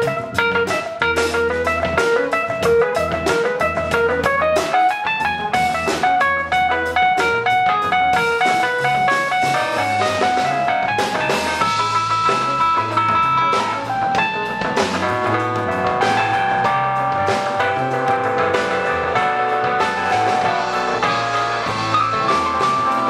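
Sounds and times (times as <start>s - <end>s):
drum kit: 0.0s - 23.0s
electric bass: 0.0s - 23.0s
electric guitar notes: 0.0s - 23.0s.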